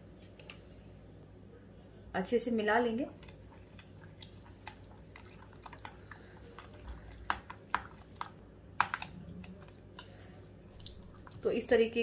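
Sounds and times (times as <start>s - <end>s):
hand squishing wet batter: 2.9s - 12.0s.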